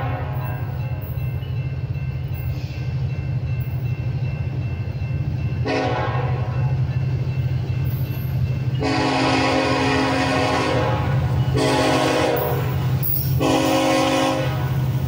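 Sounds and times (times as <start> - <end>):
train horn: 0.0 - 0.8, 5.6 - 6.7, 8.8 - 15.0
diesel locomotive engine rumble: 0.0 - 15.0.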